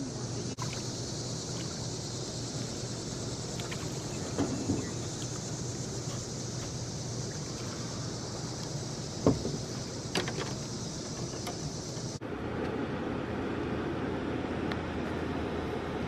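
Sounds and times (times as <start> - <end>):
high hiss: 0.0 - 12.2.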